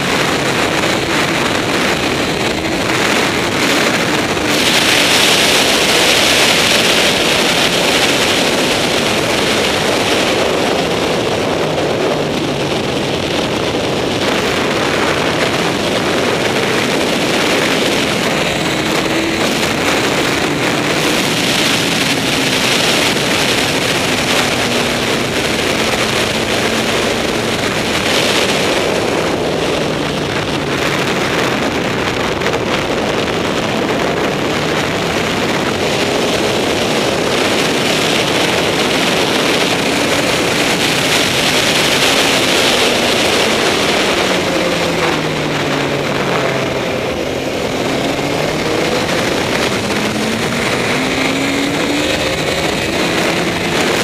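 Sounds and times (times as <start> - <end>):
motorcycle engine running hard: 0.0 - 54.0
wind rushing over microphone: 0.0 - 54.0.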